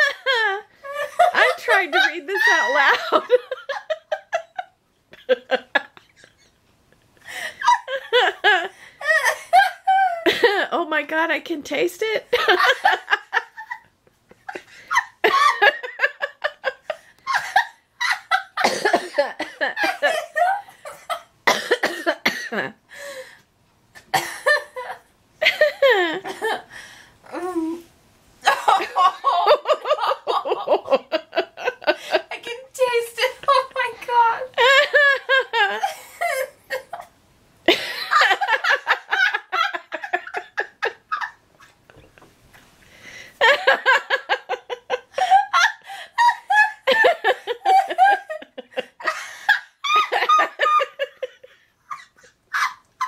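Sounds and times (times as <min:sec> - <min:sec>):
woman laughing: 0:00.0 - 0:06.5, 0:07.3 - 0:10.8, 0:12.3 - 0:21.2, 0:28.4 - 0:37.1, 0:37.7 - 0:42.2, 0:43.4 - 0:53.0
woman coughing: 0:18.6 - 0:20.2, 0:21.5 - 0:22.8, 0:24.1 - 0:24.6.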